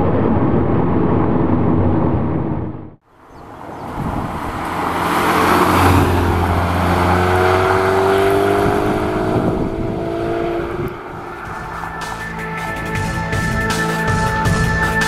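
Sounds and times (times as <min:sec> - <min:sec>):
car engine passing by: 0:03.3 - 0:13.9
car accelerating away: 0:03.4 - 0:13.9.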